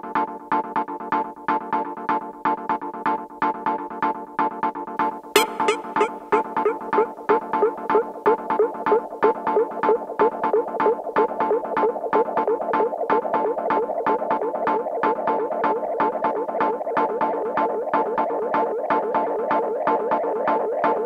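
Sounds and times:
wavering synth line: 5.4 - 9.9
pulsing synthesizer music: 5.4 - 12.0.

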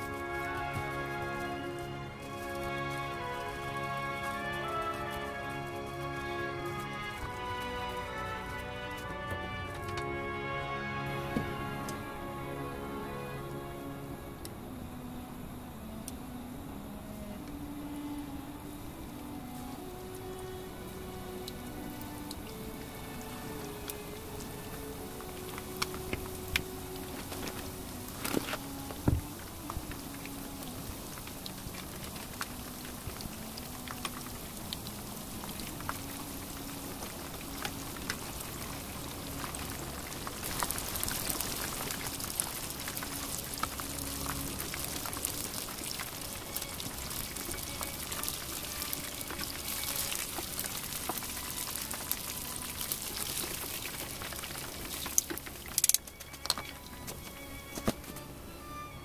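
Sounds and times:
fish deep-frying in hot oil: 19.1 - 56.8.

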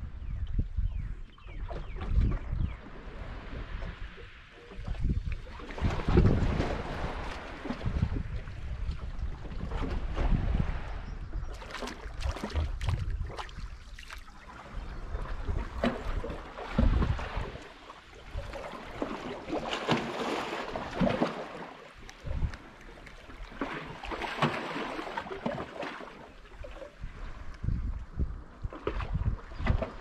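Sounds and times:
wind buffeting microphone: 0.0 - 25.6, 26.5 - 30.0
water washing against rocks: 15.7 - 26.2.

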